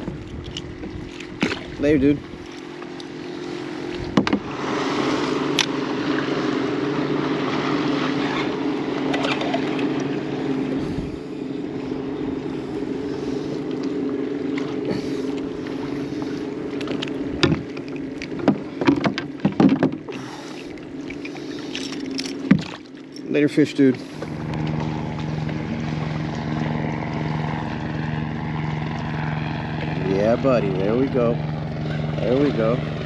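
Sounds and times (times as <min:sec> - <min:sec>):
boat motor humming: 0:00.0 - 0:33.0
sharp knocks and clicks: 0:04.1 - 0:04.4, 0:16.8 - 0:20.1.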